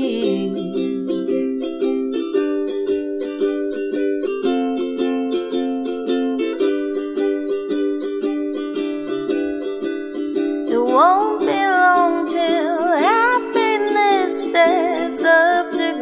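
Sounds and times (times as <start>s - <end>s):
person singing: 0.0s - 1.4s, 10.7s - 16.0s
ukulele strumming: 0.0s - 16.0s.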